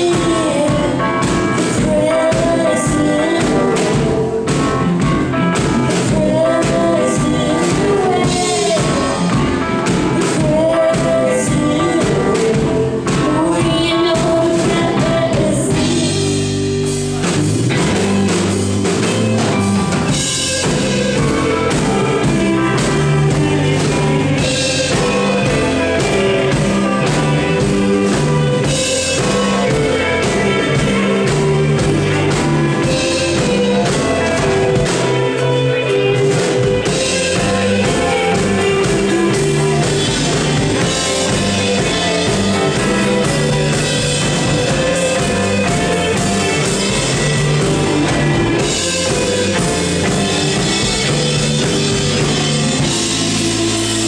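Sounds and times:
drum kit: 0.0s - 54.0s
electric guitars: 0.0s - 54.0s
person singing: 0.0s - 54.0s.

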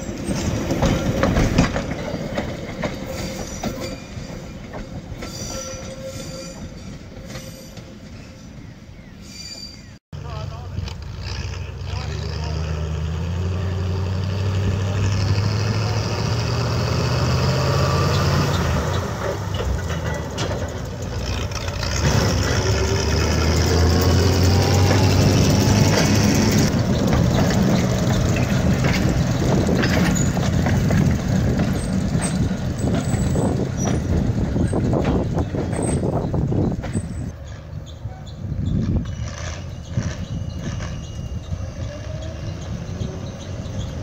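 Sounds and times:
steel wheels clattering on rails: 0.0s - 8.6s, 17.5s - 44.0s
high thin squeal: 5.2s - 8.6s, 9.2s - 10.0s
locomotive engine revving: 10.2s - 37.8s.

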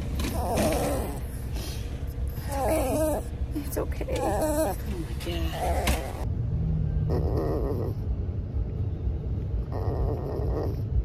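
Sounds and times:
puppy whimpering: 0.2s - 1.4s, 2.3s - 3.3s, 4.0s - 6.3s, 7.1s - 8.0s, 9.7s - 10.9s.

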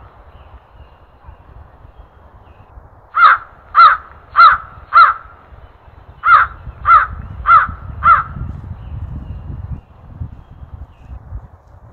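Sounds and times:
crow cawing: 3.2s - 5.4s, 6.2s - 8.4s.

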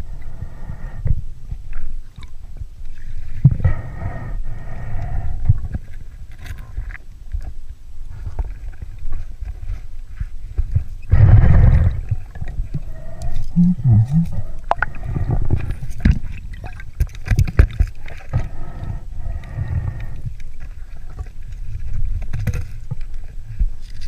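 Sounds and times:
exhaled bubbles rumbling: 10.6s - 23.8s.

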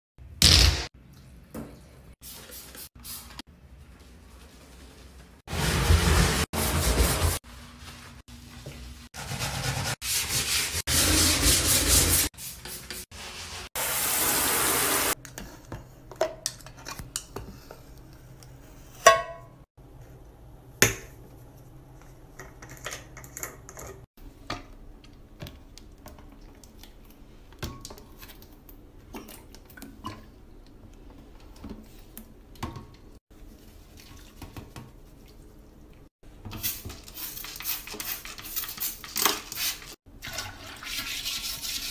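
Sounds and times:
loud scrubbing: 5.5s - 7.4s.

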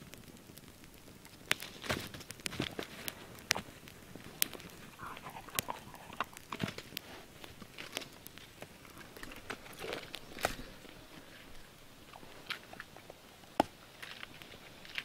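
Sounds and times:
campfire crackling and popping: 0.0s - 15.0s.

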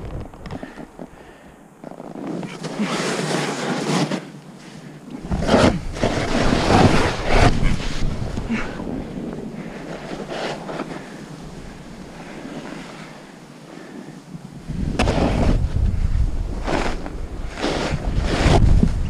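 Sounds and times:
snowboard edge scraping: 0.0s - 19.0s
snowboard sliding over snow: 0.0s - 19.0s
wind buffeting microphone: 5.2s - 19.0s.

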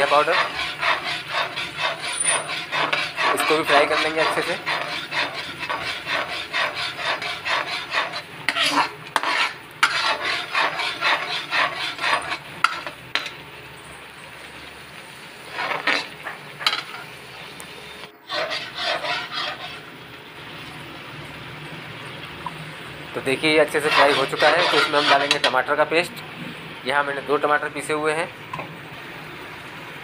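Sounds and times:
ladle scraping metal pan: 0.0s - 13.4s, 15.5s - 17.1s, 18.2s - 19.8s, 23.4s - 25.7s
paste sizzling: 0.0s - 13.9s, 15.0s - 17.2s, 18.0s - 20.7s, 22.4s - 26.1s.

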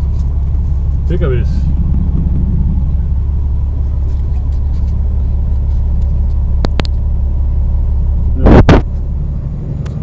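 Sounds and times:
truck driving low rumble: 0.0s - 10.0s
loud thump: 1.5s - 4.1s.

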